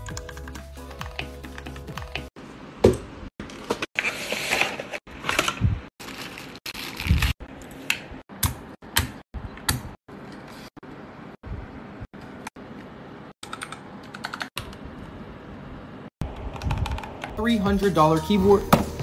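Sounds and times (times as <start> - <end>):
background music: 0.0 - 2.3, 17.4 - 19.0
paper packaging rustling: 3.4 - 7.4
mechanical keyboard typing: 13.4 - 14.8, 16.3 - 17.3.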